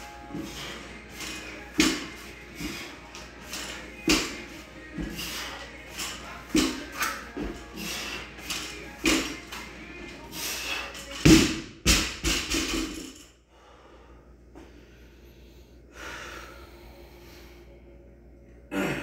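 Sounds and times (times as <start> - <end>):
hard breathing: 0.3 - 4.0, 5.0 - 6.8, 7.5 - 8.8, 10.2 - 11.1, 13.5 - 17.8
barbell dropped on floor: 11.2 - 13.2.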